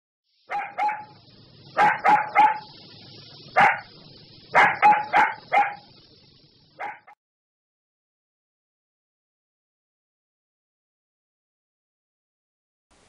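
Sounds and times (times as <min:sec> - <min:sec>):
dog barking: 0:00.5 - 0:01.2, 0:01.8 - 0:02.8, 0:03.6 - 0:06.0, 0:06.8 - 0:07.2.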